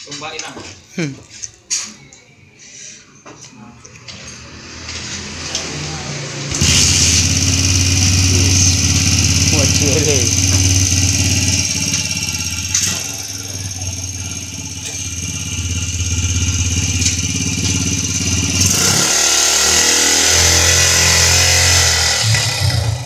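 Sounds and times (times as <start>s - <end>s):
motorcycle engine revving: 3.9s - 23.0s.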